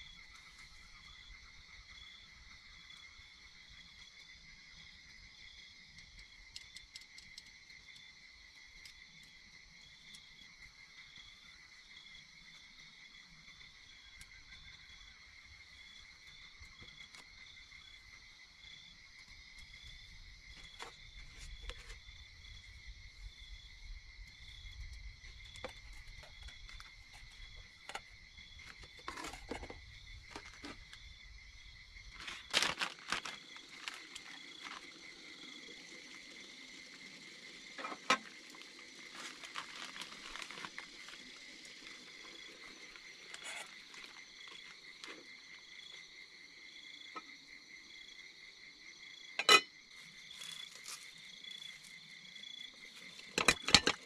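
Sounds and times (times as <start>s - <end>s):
insects chirring: 0.0s - 54.0s
handling clicks and knocks: 53.3s - 54.0s.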